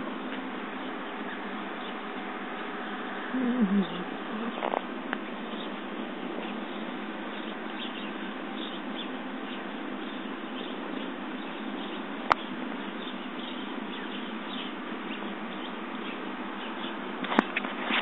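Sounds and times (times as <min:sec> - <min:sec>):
bird chirps: 0:06.4 - 0:17.0.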